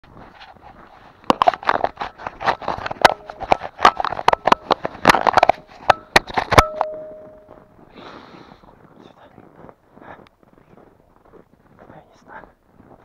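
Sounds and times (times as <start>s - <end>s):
short steady tone: 5.9s - 7.7s.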